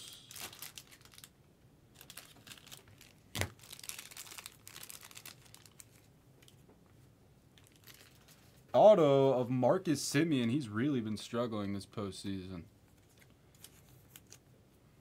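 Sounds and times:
packaging rustling and crinkling: 0.3 - 1.3, 1.9 - 6.6, 7.6 - 8.7.

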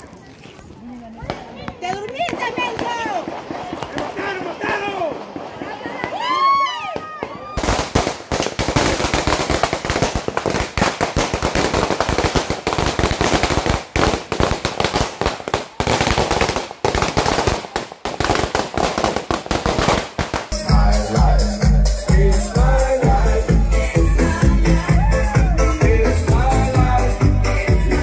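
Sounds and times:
fireworks bangs and crackles: 0.3 - 20.8.

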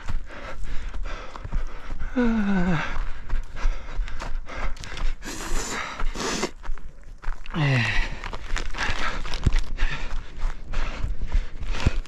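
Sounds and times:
runner breathing hard: 0.0 - 6.8, 7.5 - 12.0
running footsteps: 0.0 - 12.0
person groaning: 2.2 - 2.8, 7.5 - 8.1.

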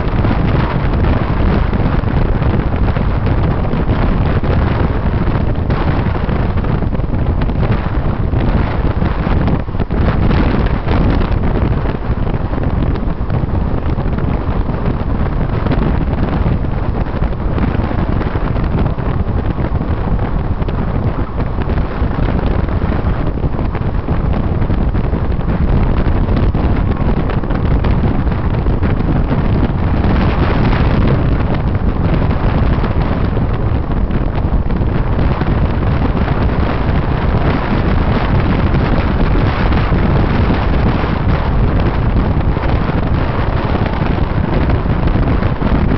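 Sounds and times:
road noise: 0.0 - 45.9
wind buffeting microphone: 0.0 - 45.9.

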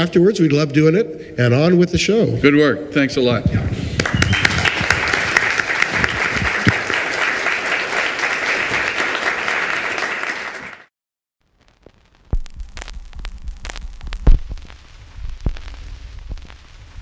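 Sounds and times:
audience applauding: 4.0 - 10.9
low hum: 12.2 - 17.0.

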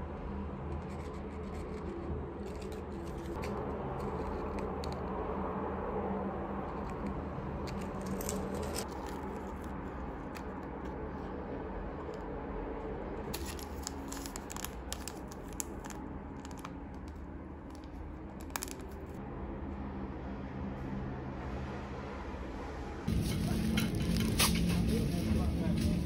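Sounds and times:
low background hum: 0.0 - 26.0
plastic bag crinkling: 13.4 - 16.6.

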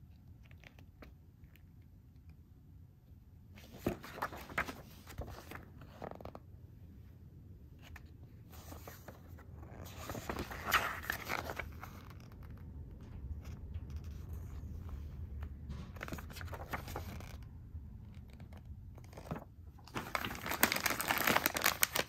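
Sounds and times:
glossy pages rustling: 3.6 - 6.4, 7.8 - 17.5, 18.1 - 22.0.

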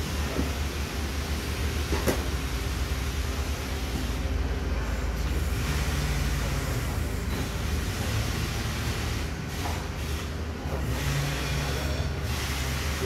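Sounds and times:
diesel engine low rumble: 0.0 - 13.0.

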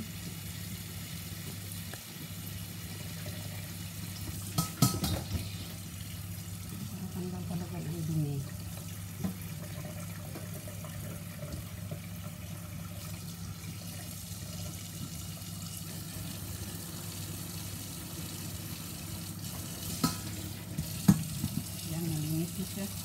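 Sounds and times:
tap water splashing on meat: 4.2 - 5.7, 9.2 - 9.5, 19.4 - 21.9.

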